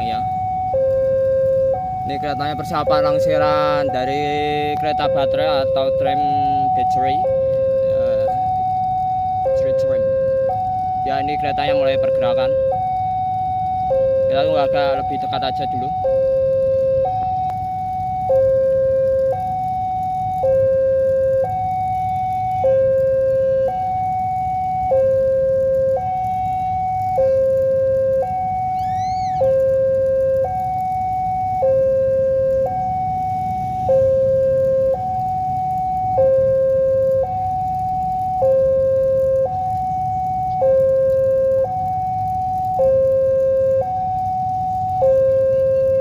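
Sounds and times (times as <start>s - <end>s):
level crossing two-tone alarm: 0.0s - 46.0s
rising and falling chirp: 28.8s - 29.5s.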